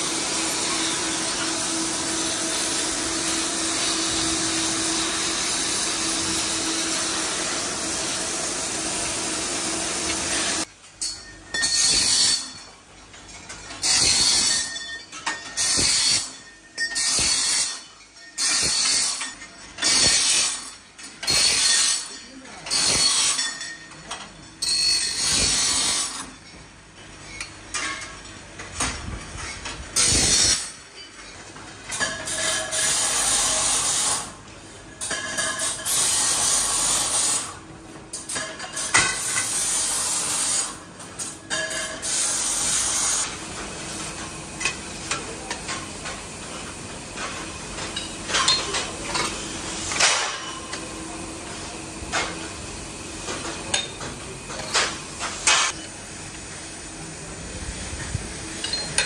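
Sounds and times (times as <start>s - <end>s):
low steady factory din: 0.0s - 59.0s
loud bursts of hissing: 30.0s - 30.7s, 32.4s - 34.3s, 35.8s - 37.6s, 39.2s - 40.8s, 42.0s - 43.3s.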